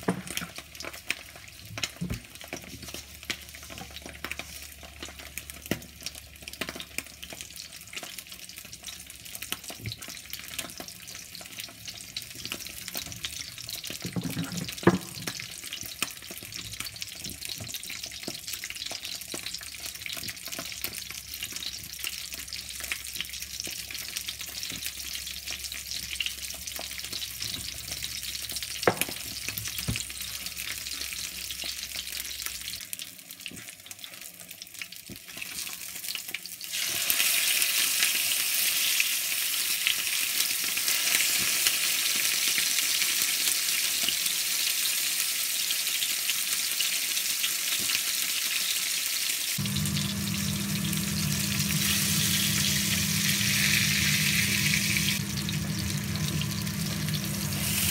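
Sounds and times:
fish sizzling in oil: 0:00.0 - 0:57.9
steady low hum: 0:49.6 - 0:57.9.

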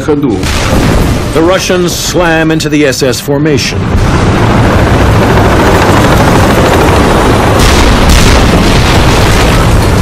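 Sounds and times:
sharp blasts: 0:00.3 - 0:02.3, 0:03.8 - 0:10.0
gunfire: 0:00.4 - 0:01.6, 0:07.5 - 0:10.0
heavy engines and tracks rumbling: 0:00.5 - 0:10.0.

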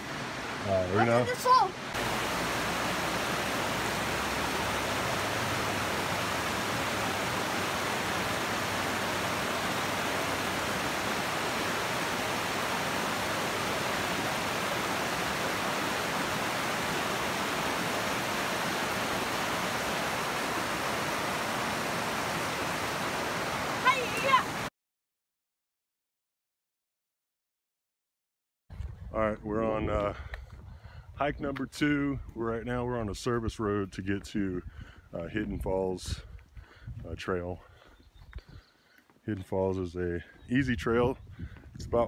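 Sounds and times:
creek white water rushing: 0:00.0 - 0:24.7.

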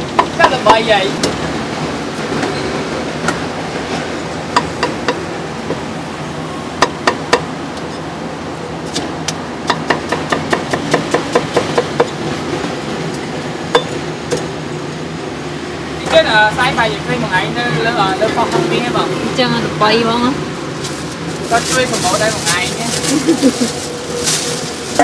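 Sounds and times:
cleaver chopping meat on wood: 0:09.7 - 0:12.2.

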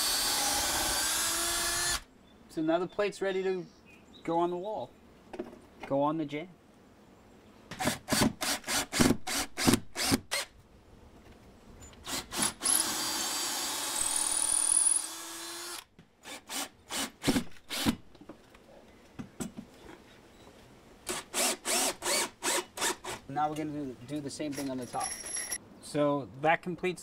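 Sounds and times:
cordless drill driving screws: 0:00.0 - 0:02.1, 0:12.0 - 0:18.0, 0:21.1 - 0:23.2.

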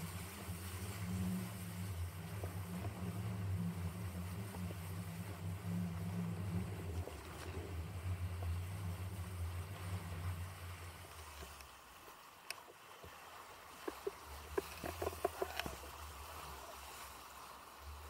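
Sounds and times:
wind buffeting microphone: 0:00.0 - 0:11.4
water rushing under kiteboard: 0:00.0 - 0:18.0
faint ticks of spray: 0:10.1 - 0:17.2.

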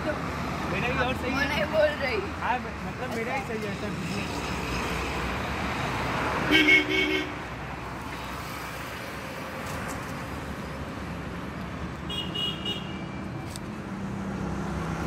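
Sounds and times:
road traffic: 0:00.0 - 0:15.0
vehicle horn beep: 0:06.5 - 0:07.3, 0:12.1 - 0:13.1.

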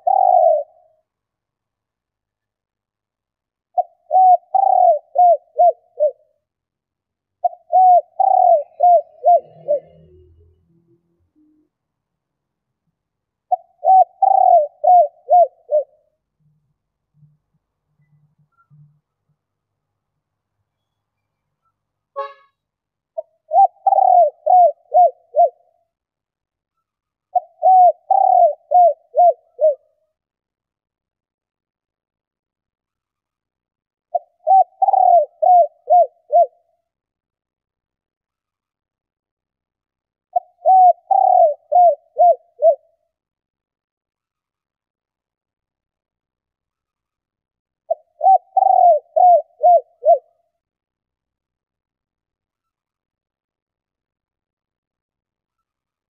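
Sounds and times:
dove cooing: 0:00.0 - 0:00.9, 0:03.7 - 0:06.3, 0:07.4 - 0:10.4, 0:13.5 - 0:16.0, 0:23.2 - 0:25.7, 0:27.3 - 0:29.9, 0:34.1 - 0:36.6, 0:40.3 - 0:42.9, 0:47.9 - 0:50.3.

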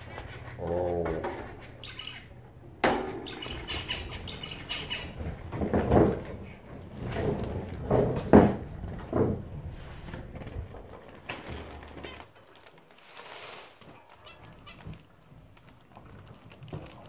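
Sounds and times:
finches chirping: 0:01.5 - 0:02.6, 0:03.2 - 0:05.2
wings fluttering: 0:09.9 - 0:17.0.

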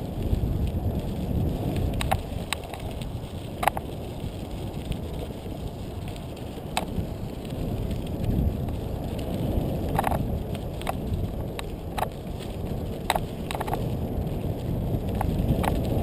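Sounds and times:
bike tires rumbling on gravel: 0:00.0 - 0:16.0
wind on the microphone: 0:00.0 - 0:16.0
sharp clacks from the bike: 0:01.7 - 0:04.0, 0:09.8 - 0:14.0, 0:15.1 - 0:16.0.

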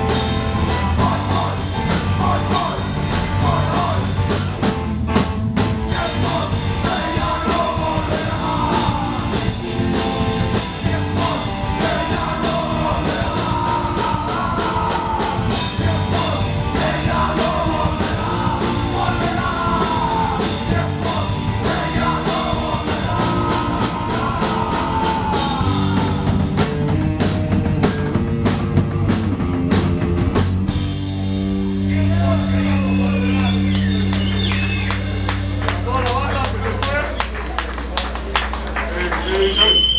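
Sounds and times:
punk rock band playing: 0:00.0 - 0:37.4
man singing: 0:01.0 - 0:04.3, 0:05.9 - 0:26.5.

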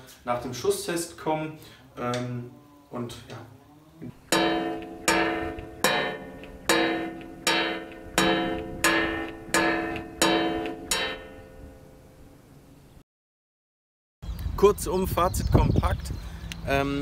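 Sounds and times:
plucked guitar chords: 0:04.3 - 0:12.4.

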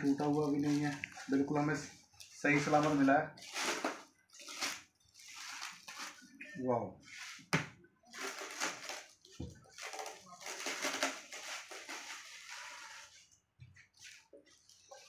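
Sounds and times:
plastic film crinkling: 0:00.0 - 0:06.4, 0:08.1 - 0:13.3.

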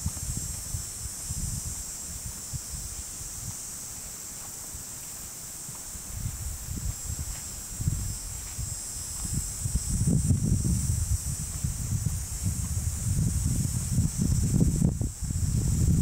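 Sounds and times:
wind buffeting microphone: 0:00.0 - 0:03.7, 0:05.7 - 0:16.0
steady high-pitched hiss: 0:00.0 - 0:16.0.

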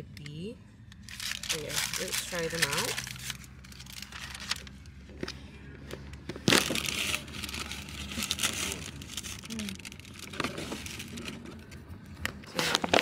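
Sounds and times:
packaging crinkling: 0:01.0 - 0:04.9, 0:06.4 - 0:11.5.

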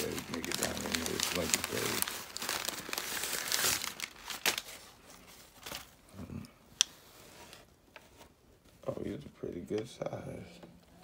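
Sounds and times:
plastic bag rustling: 0:00.0 - 0:06.0.

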